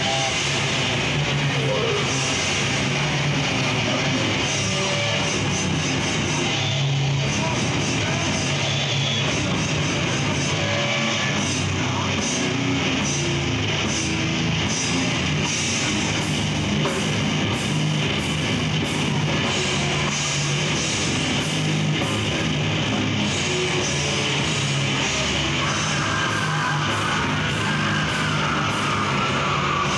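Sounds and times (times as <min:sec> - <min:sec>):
death metal band playing live: 0:00.0 - 0:29.9.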